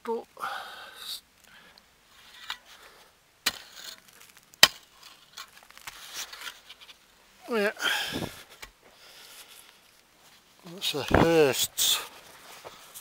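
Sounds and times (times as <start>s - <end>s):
earth and rubble scraping: 2.1s - 13.0s.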